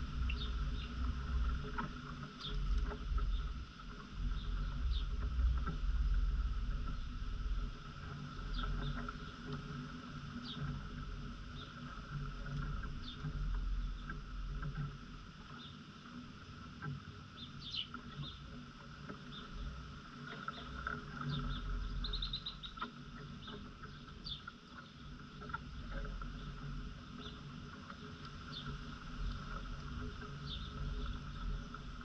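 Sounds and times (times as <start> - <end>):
low uneven rumble: 0.0 - 32.0
small birds chirping: 0.1 - 3.6, 4.2 - 5.7, 10.4 - 10.7, 11.5 - 11.8, 12.5 - 14.2, 17.4 - 18.5, 19.2 - 25.1, 25.8 - 32.0.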